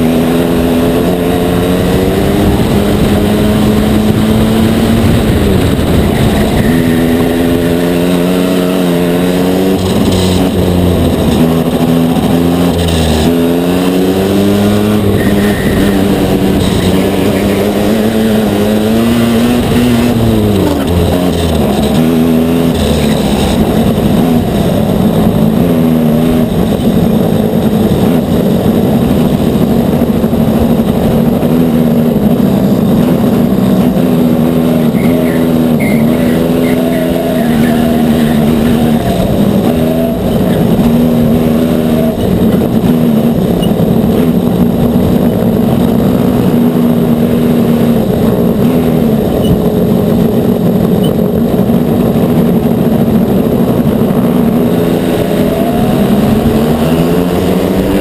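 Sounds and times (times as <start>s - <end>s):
kart engine running hard: 0.0s - 58.0s.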